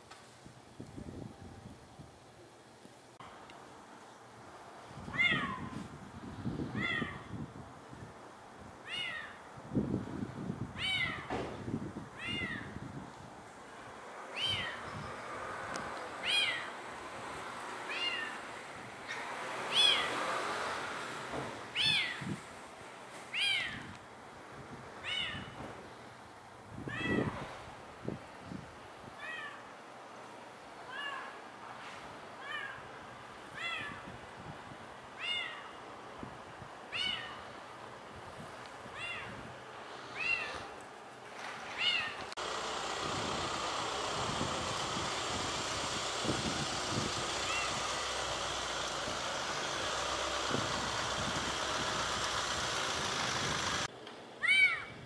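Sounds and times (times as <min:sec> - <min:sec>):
steady background noise: 0:00.0 - 0:55.0
cat meowing: 0:08.8 - 0:09.4, 0:10.8 - 0:11.3, 0:12.2 - 0:12.7, 0:14.4 - 0:14.8, 0:16.2 - 0:16.7, 0:17.9 - 0:18.4, 0:36.9 - 0:37.4, 0:47.5 - 0:47.8.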